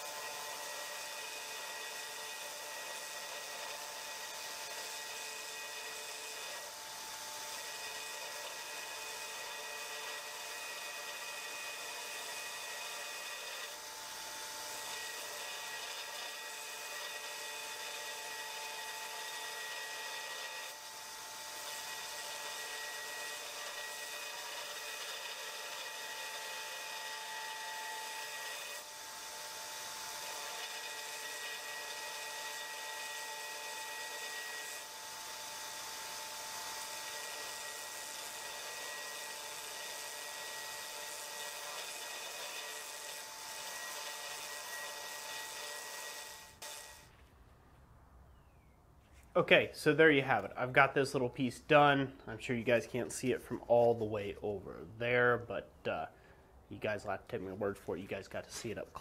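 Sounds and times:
belt grinder grinding steel: 0.0s - 47.1s.

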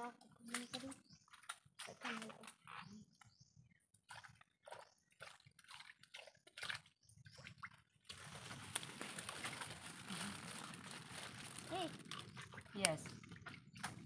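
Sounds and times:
footsteps sloshing through water: 3.9s - 14.0s.

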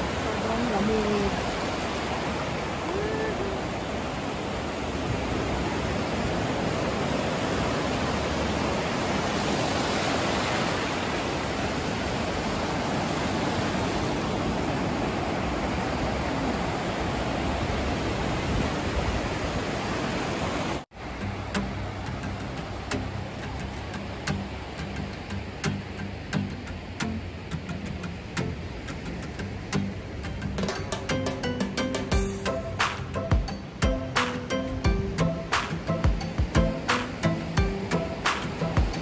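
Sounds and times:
small waves breaking on beach: 0.0s - 29.9s.

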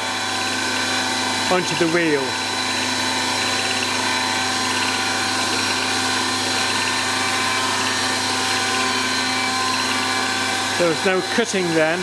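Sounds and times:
machine motor humming: 0.0s - 12.0s.

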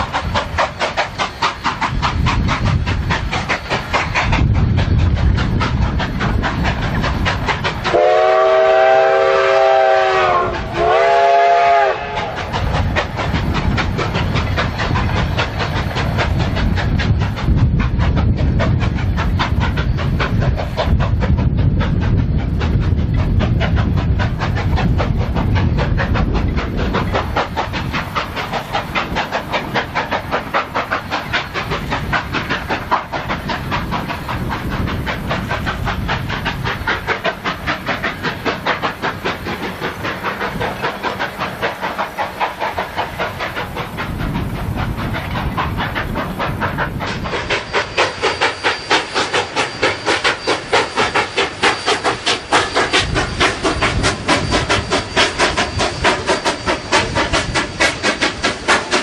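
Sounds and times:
steam locomotive chuffing: 0.0s - 59.0s
steam locomotive whistle: 7.9s - 12.5s.

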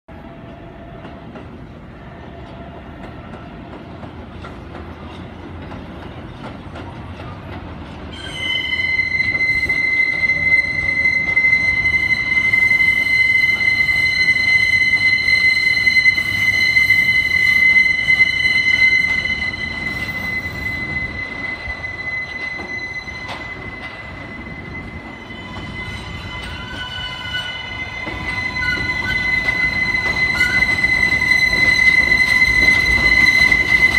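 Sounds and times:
train rumble: 0.1s - 33.9s
high-pitched wheel squeal: 8.0s - 33.9s.

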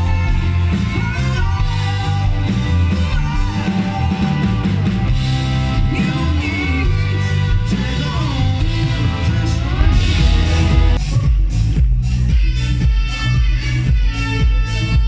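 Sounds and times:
electric guitar: 0.0s - 11.4s
bass guitar: 0.0s - 15.0s
drums: 0.0s - 15.0s.

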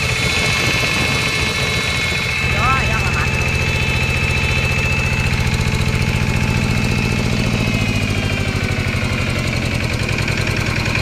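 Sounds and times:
diesel engine idling: 0.0s - 11.0s
faint whine: 0.2s - 8.7s.

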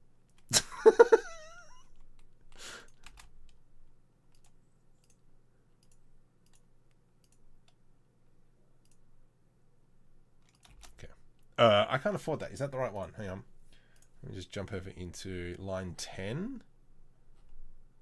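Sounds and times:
low steady hum: 0.0s - 18.0s
mouse and keyboard clicks: 10.4s - 11.0s.

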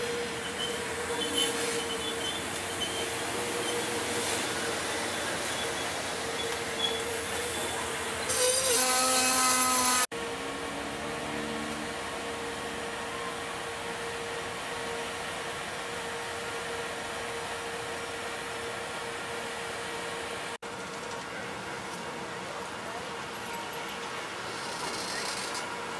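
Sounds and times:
train brake hiss with squeal: 0.0s - 10.0s
train humming with faint whine: 0.0s - 25.9s.

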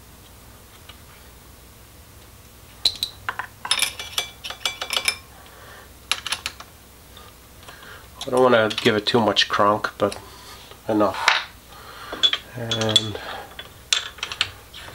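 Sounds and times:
metal parts clinking against vise: 2.8s - 5.2s, 8.2s - 9.0s, 12.1s - 14.9s.

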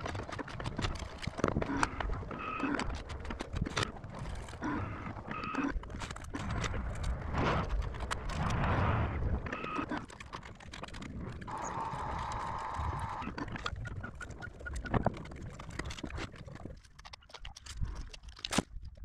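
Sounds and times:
low rumble: 6.4s - 9.6s.

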